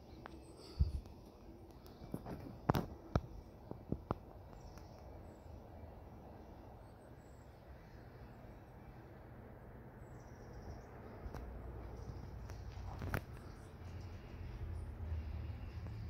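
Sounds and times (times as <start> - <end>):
low steady background rumble: 0.0 - 16.0.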